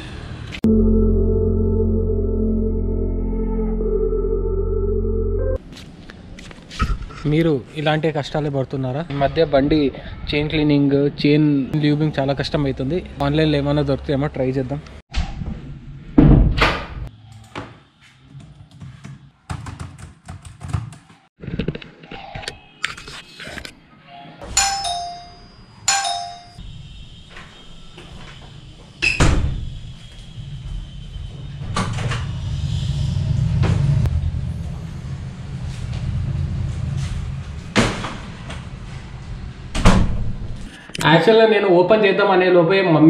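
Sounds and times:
low steady hum: 0:00.6 - 0:05.6
two-note doorbell chime: 0:00.6 - 0:05.6, 0:24.5 - 0:26.6.

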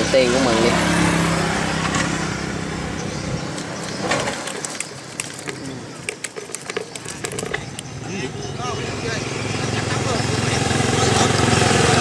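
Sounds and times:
passing vehicle rumble: 0:00.0 - 0:04.6, 0:07.1 - 0:12.0.

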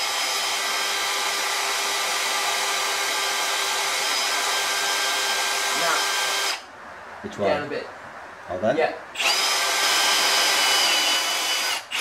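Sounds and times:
cordless drill drilling metal: 0:00.0 - 0:06.7, 0:09.2 - 0:12.0.

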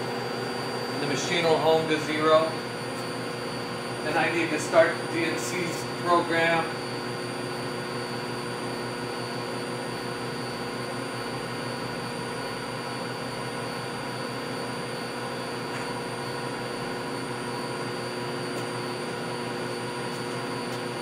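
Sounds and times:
milling machine electrical hum: 0:00.0 - 0:21.0.

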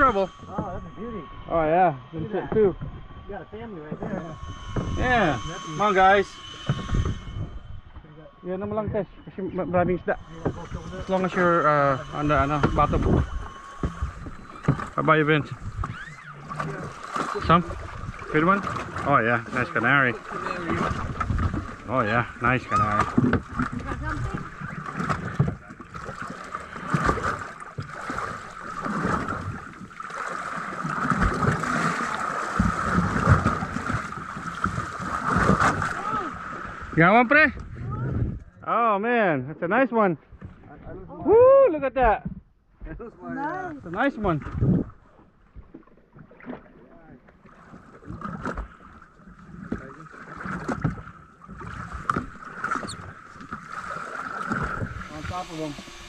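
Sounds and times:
low thumps: 0:00.0 - 0:25.7
wind on microphone: 0:00.0 - 0:25.7, 0:30.9 - 0:37.0, 0:37.6 - 0:38.6, 0:43.6 - 0:45.8, 0:54.4 - 0:56.0
water lapping against boat hull: 0:00.0 - 0:38.6, 0:40.1 - 0:56.0.

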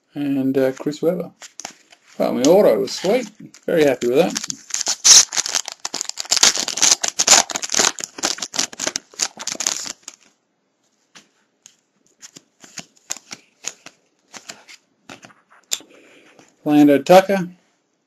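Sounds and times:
cards clicking and rustling: 0:01.4 - 0:10.3, 0:11.2 - 0:15.8
foil wrapper tearing and crinkling: 0:04.0 - 0:10.3.

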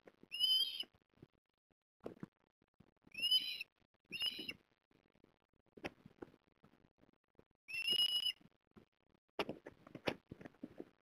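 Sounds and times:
bird high call: 0:03.2 - 0:04.6, 0:07.7 - 0:08.4.

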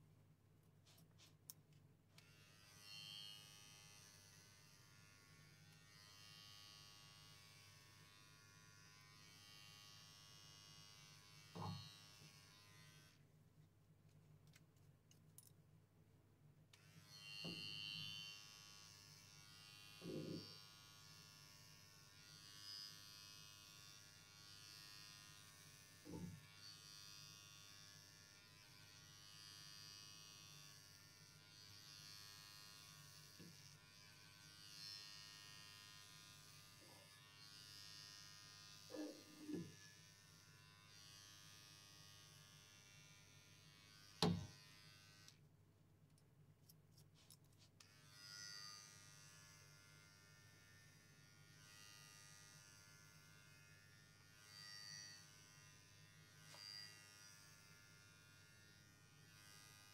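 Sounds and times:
electric clippers buzzing: 0:02.2 - 0:13.2, 0:16.8 - 0:45.4, 0:47.8 - 0:59.9.

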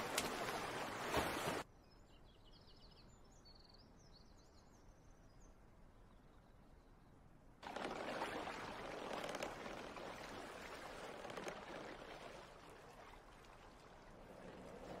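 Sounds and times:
water lapping and trickling: 0:00.0 - 0:01.7, 0:07.6 - 0:15.0.

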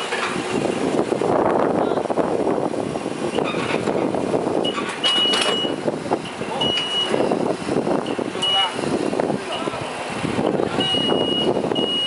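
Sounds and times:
reversing alarm beeps: 0:04.6 - 0:05.8, 0:06.6 - 0:07.2, 0:08.4 - 0:08.8, 0:10.8 - 0:12.0.

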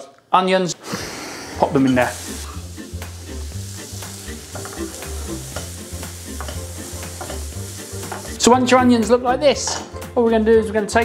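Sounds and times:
onion sizzling in oil: 0:00.9 - 0:09.1
background music with bass line: 0:02.0 - 0:11.0
spatula scraping and tapping pan: 0:04.5 - 0:08.4.

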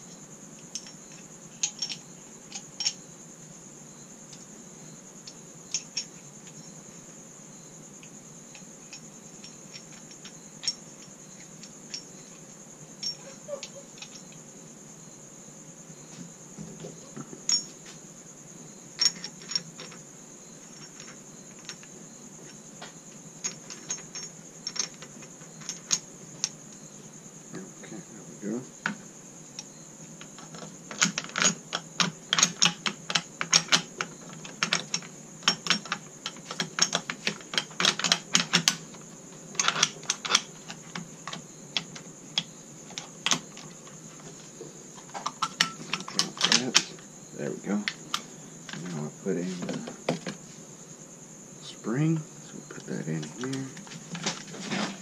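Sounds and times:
metallic clicks and rattles: 0:00.6 - 0:03.0, 0:29.6 - 0:43.8, 0:45.0 - 0:47.0.

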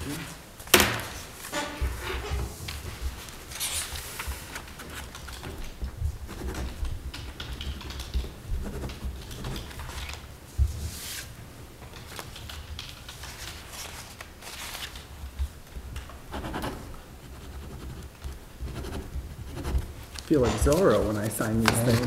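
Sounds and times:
paper rustling: 0:00.0 - 0:16.2, 0:19.6 - 0:22.0
pens scratching on paper: 0:01.8 - 0:10.2, 0:16.0 - 0:22.0.

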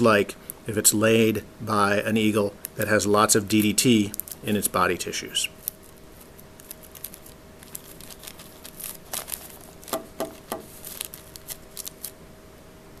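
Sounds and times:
plastic bag crinkling: 0:03.5 - 0:12.2.

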